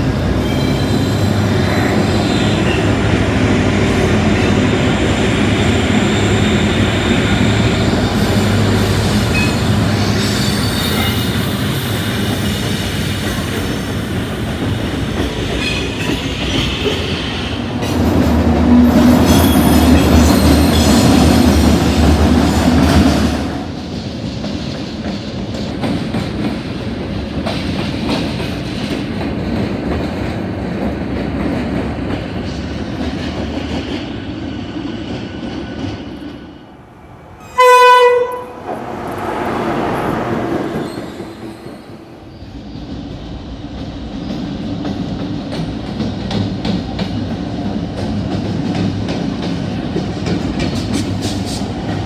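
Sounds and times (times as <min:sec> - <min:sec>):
train horn blast: 0:37.4 - 0:38.7.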